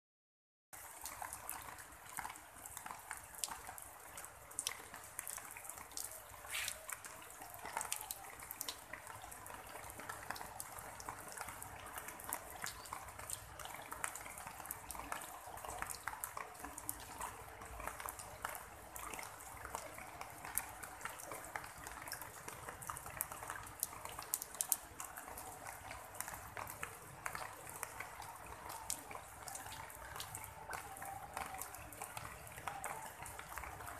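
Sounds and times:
rain drops tapping on leaves: 0.8 - 33.9
steady rain hiss: 6.1 - 7.1.

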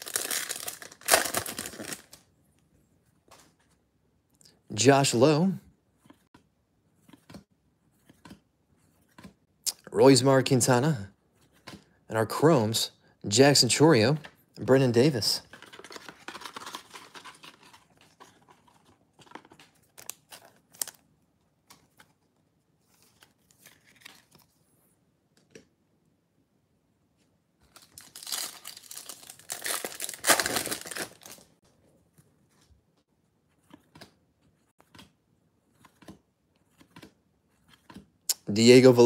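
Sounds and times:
wrapper tearing and crinkling: 0.0 - 2.2, 27.7 - 31.5
cards clicking and rustling: 15.1 - 24.5.

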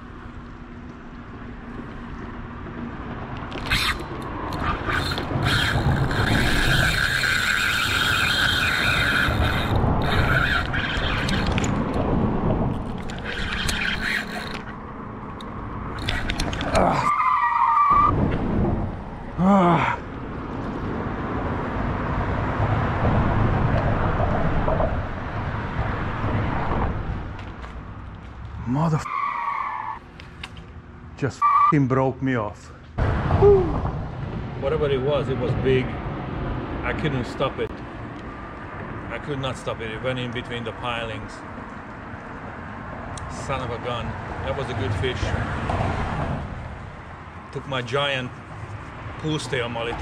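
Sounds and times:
fishing reel drag screaming: 3.6 - 11.8, 12.9 - 14.8, 16.0 - 18.1
person shouting: 19.4 - 20.0, 33.4 - 33.8.

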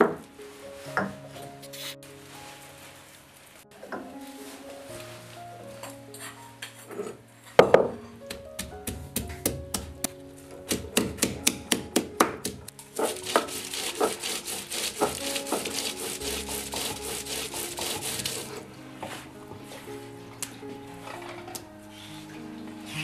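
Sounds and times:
faint background music: 0.0 - 23.0
stone scraping across slab: 13.0 - 18.6.

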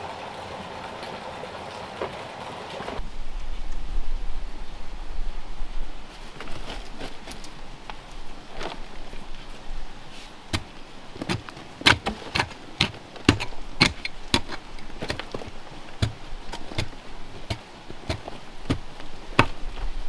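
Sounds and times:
soil clods falling: 10.1 - 20.0
digging tool striking earth: 10.5 - 19.9.

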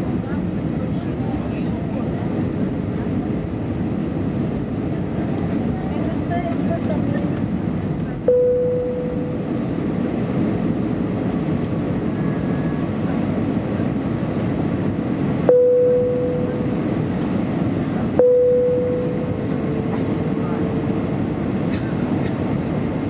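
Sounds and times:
airplane cabin rumble: 0.0 - 23.0
ringing tones: 8.3 - 9.5, 15.5 - 16.8, 18.2 - 19.9.

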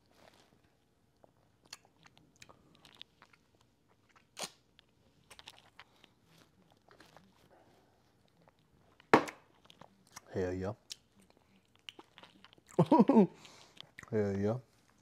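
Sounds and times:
lip smacks and clicks: 8.4 - 12.8.

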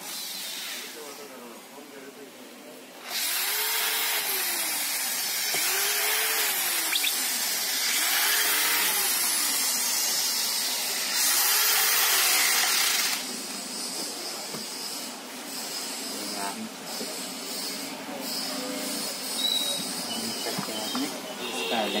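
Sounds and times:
drill-driver motor whining: 3.0 - 13.3.

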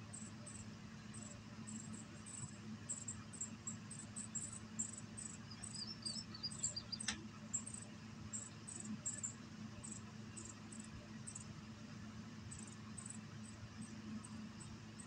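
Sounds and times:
low steady hum: 0.0 - 15.0
insects chirping: 1.7 - 11.5, 12.5 - 13.6.

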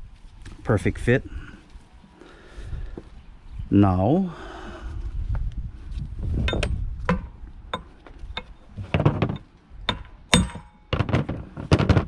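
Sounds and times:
metal parts clinking and knocking: 6.4 - 12.0.

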